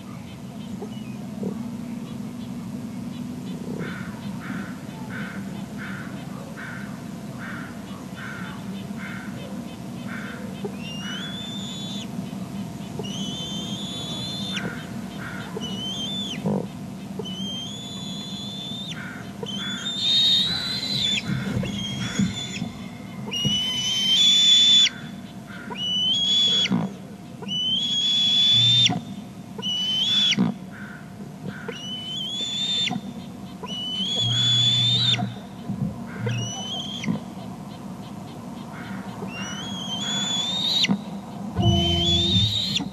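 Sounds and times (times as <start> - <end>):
eagle whistled calls: 7.9 - 26.8, 27.4 - 37.3, 39.2 - 42.9.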